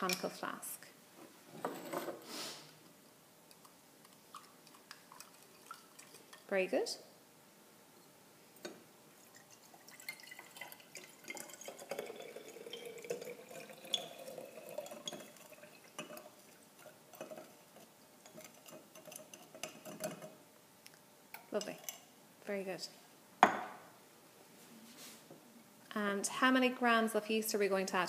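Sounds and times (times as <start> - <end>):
liquid dripping: 4.0 - 6.5, 8.6 - 22.0
liquid trickling into flask: 9.2 - 17.6
glass clinking: 10.0 - 16.2.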